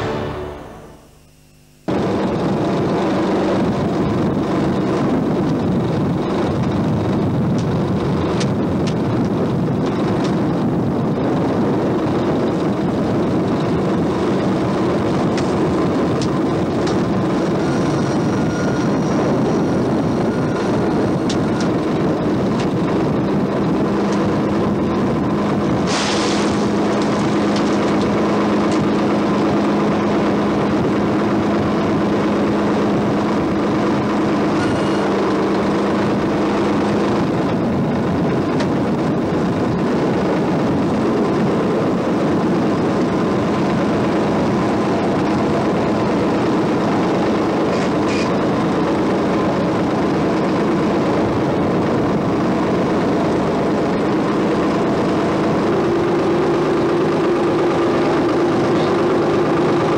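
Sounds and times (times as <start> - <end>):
boat engine droning: 0.0 - 59.9
short hiss: 25.9 - 26.6.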